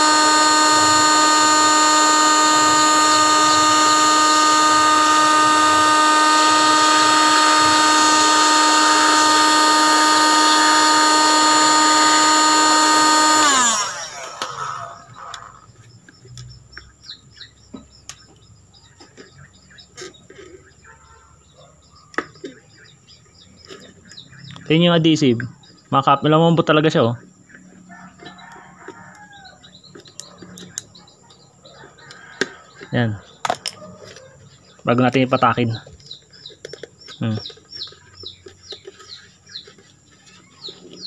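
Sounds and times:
heat gun whining and hissing: 0.0 - 15.7.

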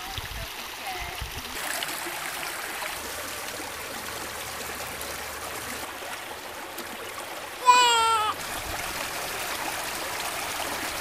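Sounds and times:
stream running over rocks: 0.0 - 11.0.

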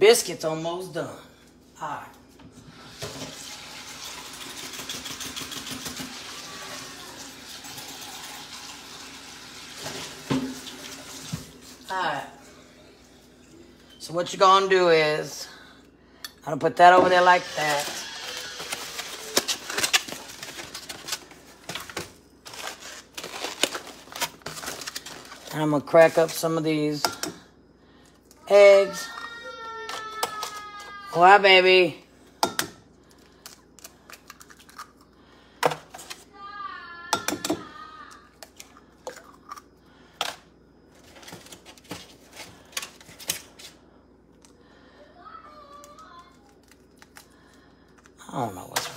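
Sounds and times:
kitchen things knocking and clicking: 4.4 - 6.2, 27.0 - 27.4, 32.4 - 32.8, 37.1 - 37.7.

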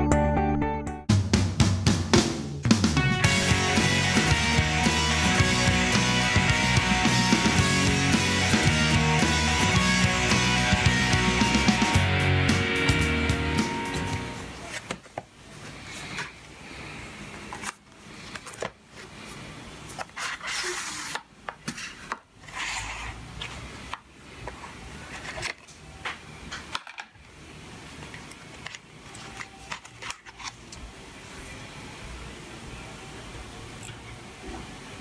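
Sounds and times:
box sliding open rustling: 17.5 - 23.6.

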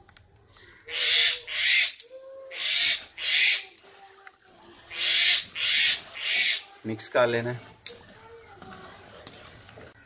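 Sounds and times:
ladle stirring and scraping pot: 4.0 - 10.0.

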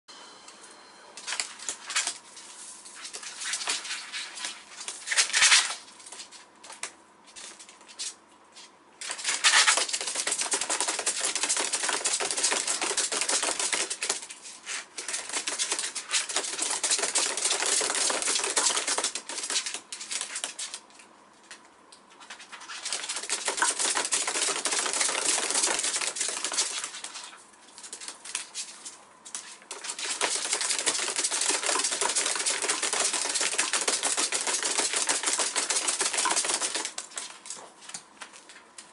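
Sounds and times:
claws pattering on wire mesh wheel: 9.0 - 14.3, 15.0 - 20.8, 22.5 - 38.0.

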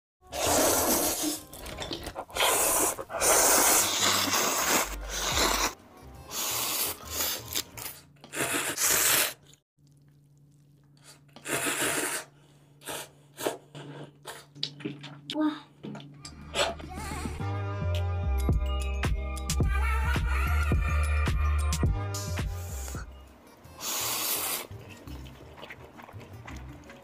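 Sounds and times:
noodles being slurped: 0.2 - 15.3, 23.7 - 27.0.

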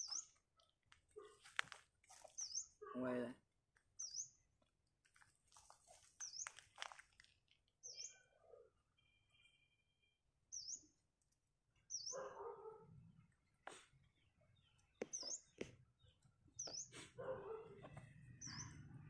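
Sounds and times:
bird chirping: 0.0 - 1.3, 2.2 - 2.9, 3.9 - 4.5, 6.2 - 6.6, 7.8 - 11.2, 11.8 - 19.0.

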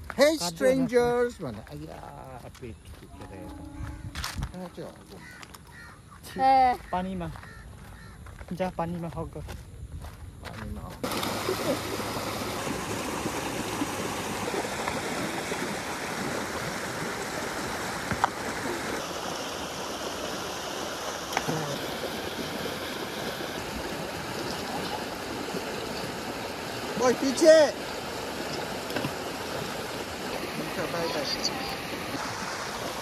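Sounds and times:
river rushing over stones: 11.0 - 33.0.

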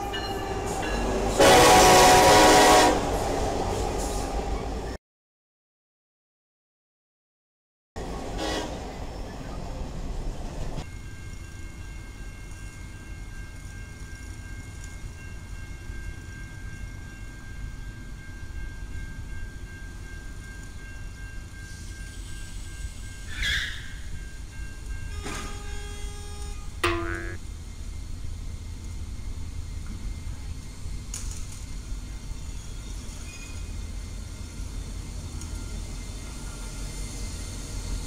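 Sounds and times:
railroad crossing bell ringing: 0.0 - 1.6, 10.8 - 28.4
freight train rumbling past: 0.0 - 5.0, 8.0 - 26.8, 27.4 - 38.0.

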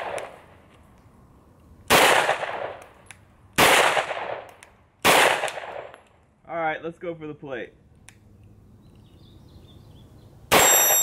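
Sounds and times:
pistol shots with echo: 1.9 - 2.8, 3.6 - 6.0, 10.5 - 11.0.

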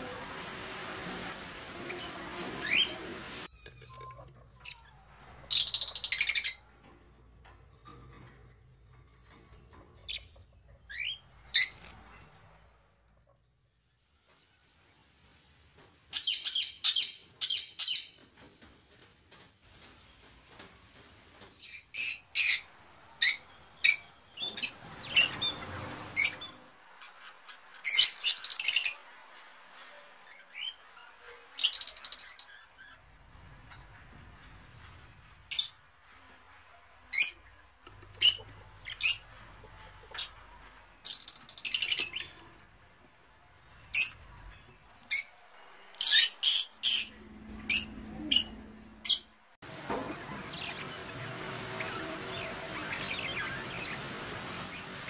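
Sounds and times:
small parrots chirping and squawking: 2.0 - 6.6, 21.6 - 34.8, 38.1 - 42.6, 43.7 - 44.3, 47.7 - 49.3.

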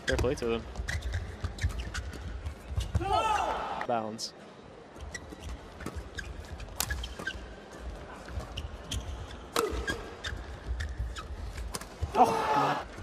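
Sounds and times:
shoes squeaking on court floor: 0.0 - 3.1, 4.9 - 12.1.

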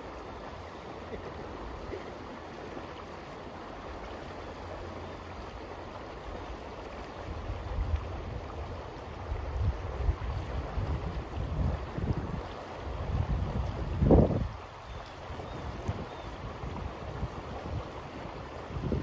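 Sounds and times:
brook water rushing: 0.0 - 19.0
wind buffeting microphone: 7.3 - 14.7, 15.4 - 19.0.

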